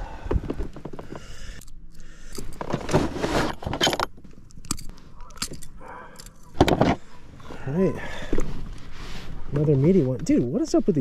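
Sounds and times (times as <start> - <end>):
metal hooks jangling and clicking: 1.5 - 2.7, 3.6 - 6.6.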